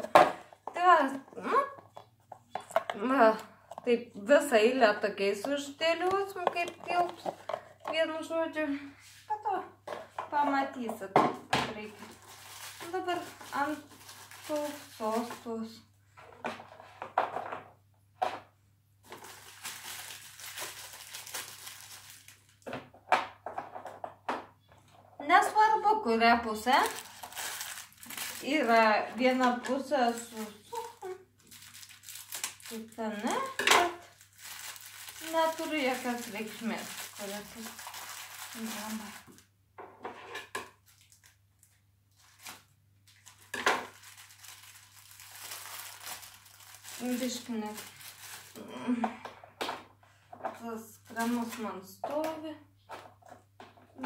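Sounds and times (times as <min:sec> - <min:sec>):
plastic wrapper rustling: 0:00.0 - 0:08.3, 0:11.8 - 0:15.7, 0:19.0 - 0:22.7, 0:26.6 - 0:39.5, 0:40.8 - 0:48.7
rustling: 0:11.8 - 0:15.5, 0:26.8 - 0:32.9.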